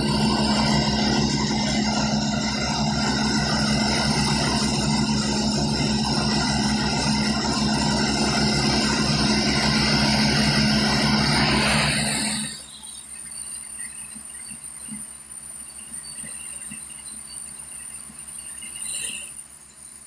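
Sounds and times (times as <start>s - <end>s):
diesel machinery running: 0.0s - 13.7s
steady whine: 0.0s - 20.0s.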